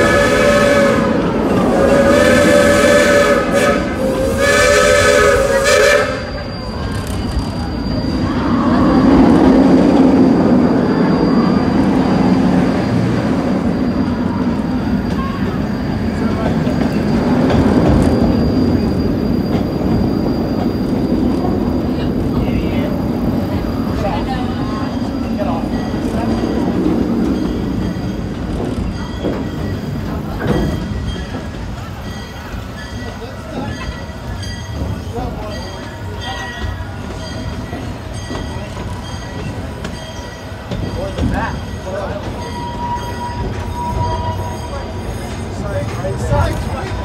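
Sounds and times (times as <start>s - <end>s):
steam hissing: 0.0s - 9.4s
steam locomotive chime whistle: 0.0s - 47.0s
train wheels rumbling on rails: 0.0s - 47.0s.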